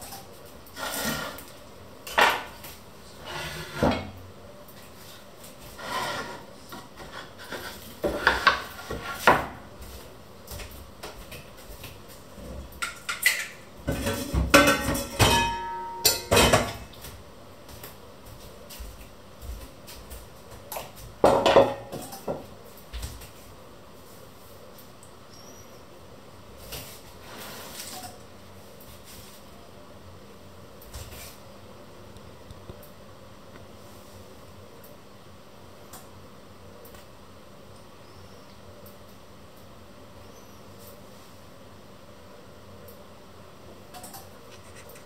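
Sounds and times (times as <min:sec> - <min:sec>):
kitchen utensils clattering on table: 0:12.8 - 0:17.0, 0:20.8 - 0:22.5.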